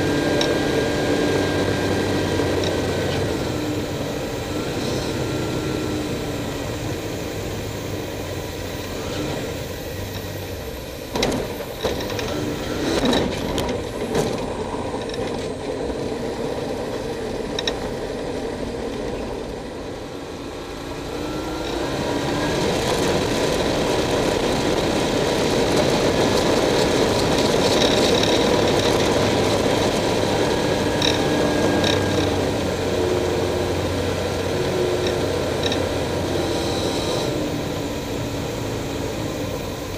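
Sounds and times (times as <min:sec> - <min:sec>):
light aircraft engine from cockpit: 0:00.0 - 0:39.9.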